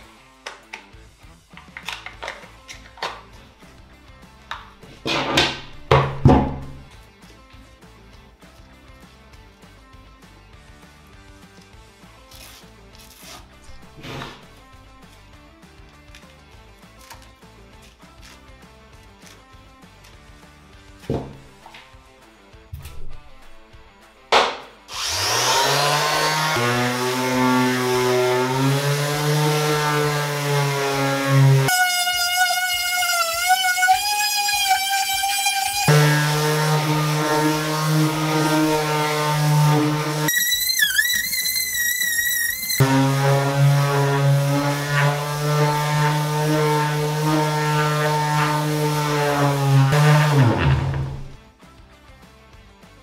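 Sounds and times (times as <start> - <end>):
electric sander motor humming: 24.9 - 51.2
sander pad sanding wood: 24.9 - 51.3.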